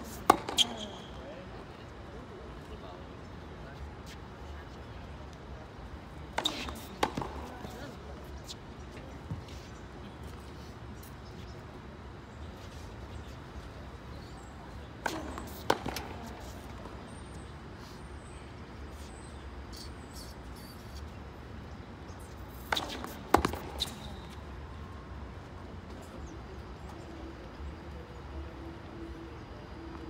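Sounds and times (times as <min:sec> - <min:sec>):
tennis balls hit with rackets: 0:00.0 - 0:01.1, 0:06.3 - 0:08.0, 0:14.9 - 0:17.0, 0:22.2 - 0:24.4
balls bouncing on hard court: 0:00.1 - 0:01.1, 0:06.3 - 0:07.8, 0:15.0 - 0:17.0, 0:22.2 - 0:24.4.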